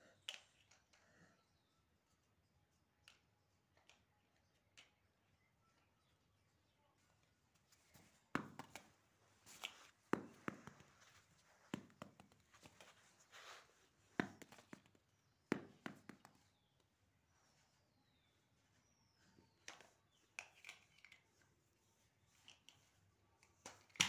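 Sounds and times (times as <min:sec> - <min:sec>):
soft rustling: 0:06.9 - 0:15.2.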